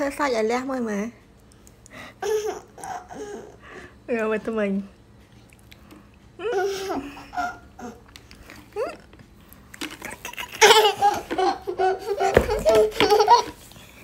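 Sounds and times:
small girl laughing: 2.2s - 3.6s, 6.4s - 8.0s, 10.1s - 13.6s.

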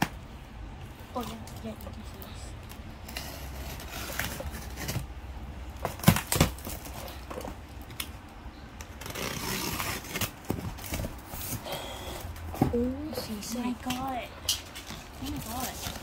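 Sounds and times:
rustle over packing tape: 1.2s - 5.1s, 8.8s - 16.0s.

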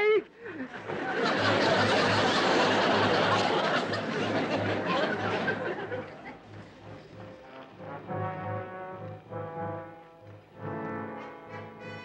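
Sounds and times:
audience laughter: 0.4s - 7.4s.

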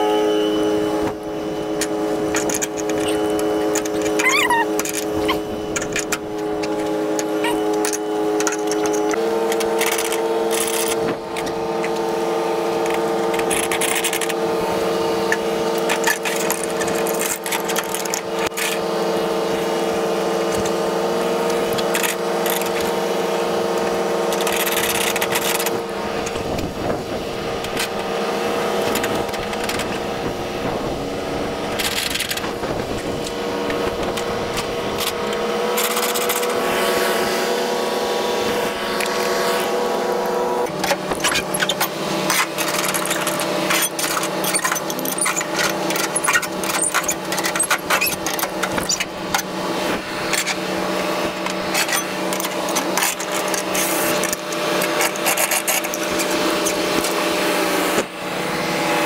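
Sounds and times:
truck engine running: 0.0s - 59.0s
rapid clicking and rattling: 1.8s - 14.4s, 15.2s - 18.8s, 21.5s - 23.0s, 23.8s - 28.1s, 31.6s - 36.6s, 40.6s - 57.3s.

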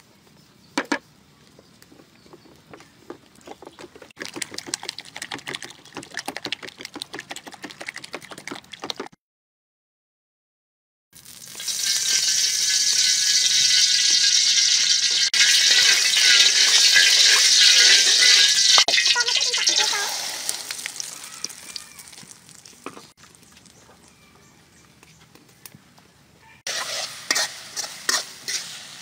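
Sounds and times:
spoon beating eggs in steel bowl: 4.2s - 9.1s
hot oil sizzling in a wok: 11.2s - 21.9s, 26.7s - 29.0s.

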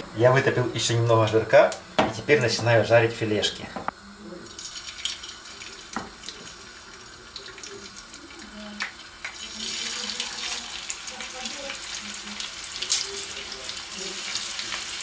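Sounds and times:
meat sizzling in frying pan: 4.4s - 15.0s.

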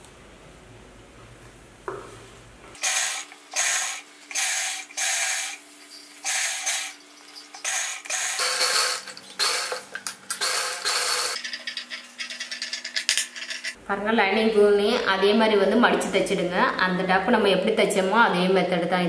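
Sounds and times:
sewing machine stitching: 7.6s - 9.8s, 10.4s - 11.4s.

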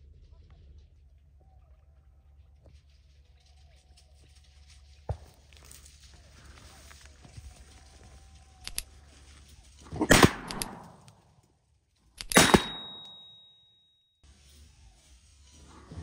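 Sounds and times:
gunshots: 9.9s - 11.2s, 12.2s - 13.4s.

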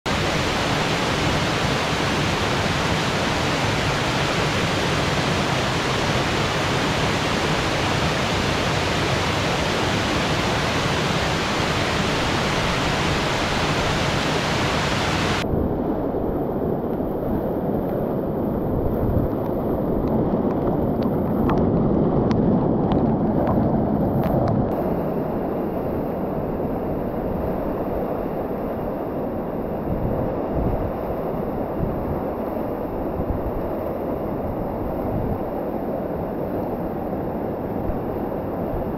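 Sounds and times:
waterfall rushing over rocks: 0.1s - 15.4s.

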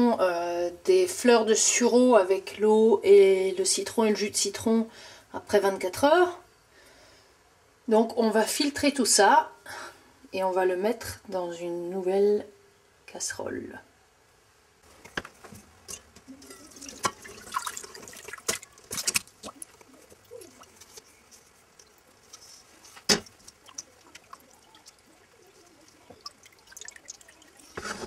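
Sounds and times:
liquid dripping: 15.8s - 27.9s
liquid splashing and trickling: 15.9s - 28.0s.

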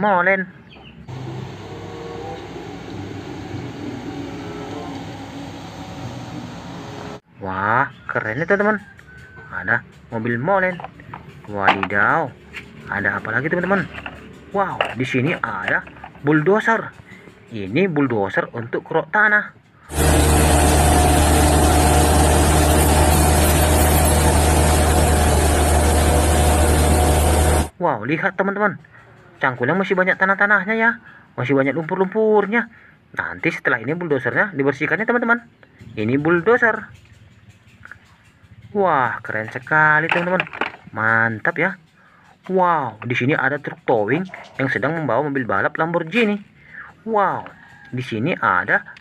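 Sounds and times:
highway traffic: 0.7s - 7.4s, 8.0s - 18.2s
bulldozer diesel engine droning: 1.0s - 7.3s, 8.0s - 18.6s, 19.6s - 27.8s.

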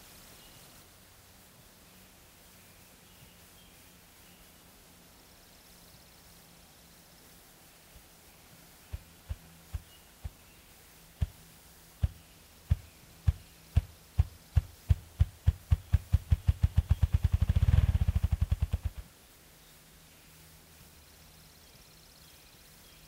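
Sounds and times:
grouse drumming with wings: 8.9s - 10.5s, 11.1s - 19.1s.

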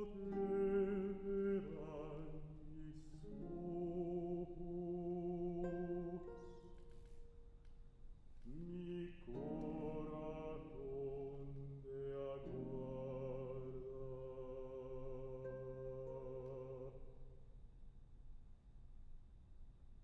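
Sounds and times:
baritone voice singing: 0.0s - 6.6s, 8.5s - 17.1s
classical guitar: 0.0s - 7.4s, 8.3s - 17.1s.

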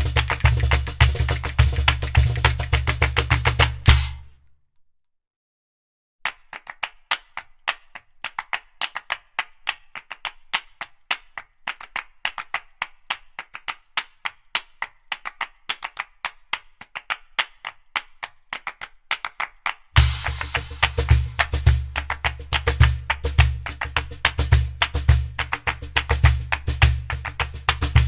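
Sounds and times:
music with bass beat: 0.0s - 4.3s, 20.0s - 28.0s.

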